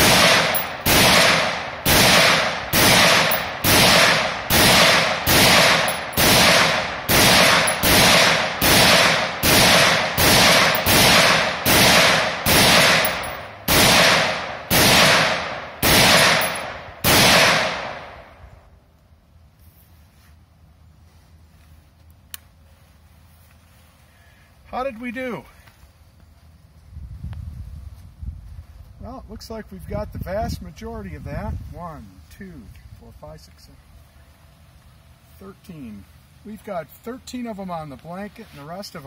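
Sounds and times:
rifle shots: 0.0 - 18.2.

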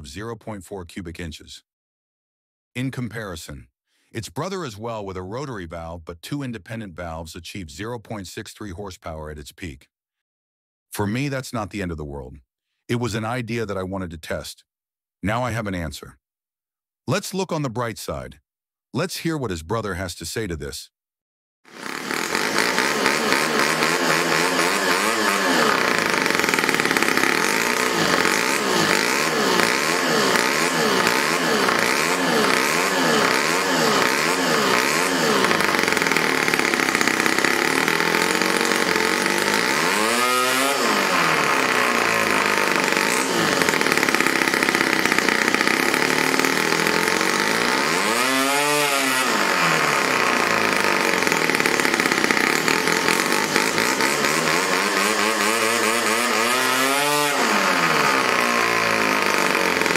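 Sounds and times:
model engine revving: 21.7 - 59.9.

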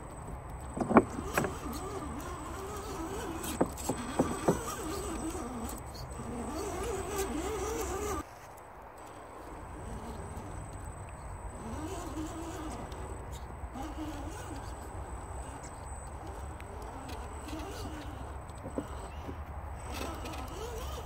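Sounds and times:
electric motor whining: 0.0 - 8.3, 9.0 - 21.0
tyres knocking against stone: 3.4 - 5.0.

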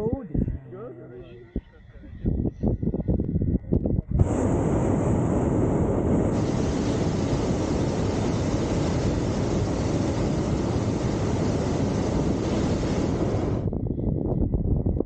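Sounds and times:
wind buffeting microphone: 0.0 - 0.7, 1.3 - 15.0
propane burner blast: 4.2 - 13.8.

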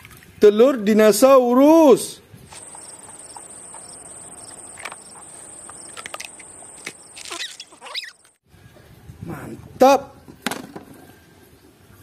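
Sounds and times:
faint outdoor background: 0.0 - 12.0
high-pitched insect trill: 2.5 - 8.4
squeaky rising and falling calls: 2.5 - 8.4.

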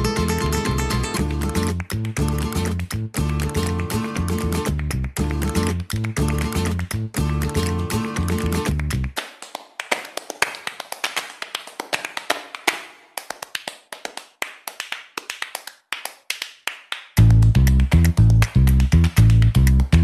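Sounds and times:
band music with guitar and bass: 0.0 - 9.1
percussive taps and claps: 0.0 - 20.0.

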